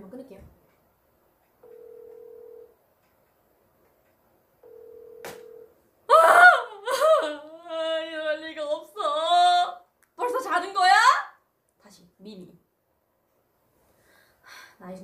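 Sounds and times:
phone ringback tone: 0:01.6 - 0:02.8, 0:04.6 - 0:05.7
woman wailing: 0:06.1 - 0:09.8.

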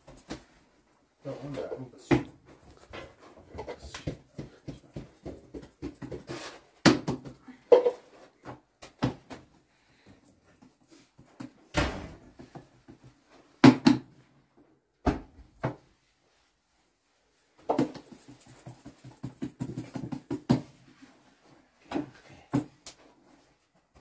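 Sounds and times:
dough slapped by hand: 0:06.8 - 0:07.3, 0:13.6 - 0:14.1.

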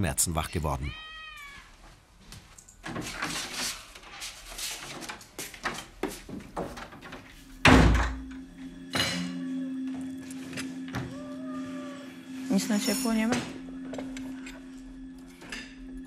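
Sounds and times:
wooden door slamming: 0:07.6 - 0:08.3.

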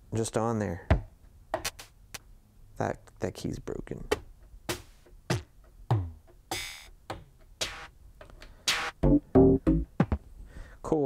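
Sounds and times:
electronic drum hits: 0:06.5 - 0:06.9, 0:07.6 - 0:07.9, 0:08.7 - 0:10.2.

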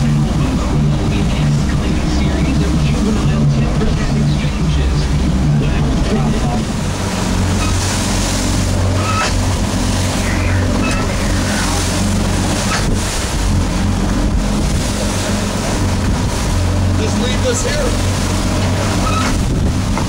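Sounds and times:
boat engine running: 0:00.0 - 0:20.0
waves and spray rushing: 0:00.0 - 0:20.0
wind buffeting microphone: 0:00.0 - 0:20.0.

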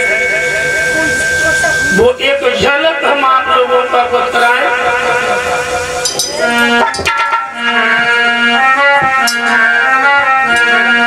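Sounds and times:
harmonium melody over drone: 0:00.0 - 0:11.0
drum strokes: 0:04.2 - 0:10.8.

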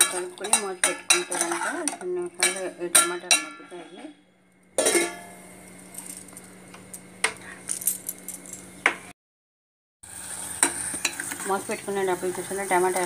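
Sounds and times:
metal lid clanging on pot: 0:00.0 - 0:03.8, 0:04.8 - 0:05.3.

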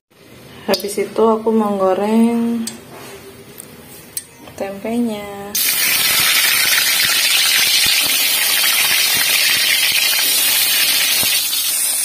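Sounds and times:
oil sizzling in a wok: 0:05.6 - 0:12.0.

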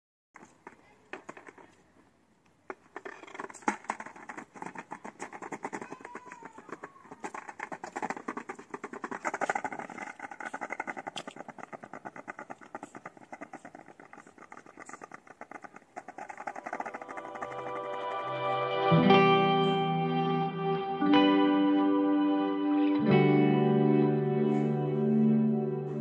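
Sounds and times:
skateboard wheels on paving stones: 0:00.4 - 0:19.9.

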